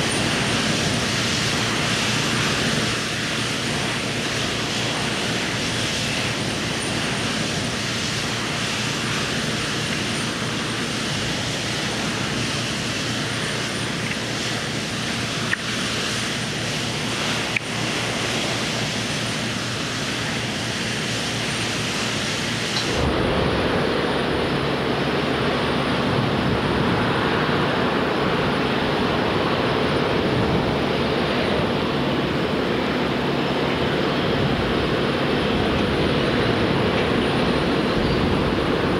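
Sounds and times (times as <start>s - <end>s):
heavy machinery engines droning: 0.0s - 38.9s.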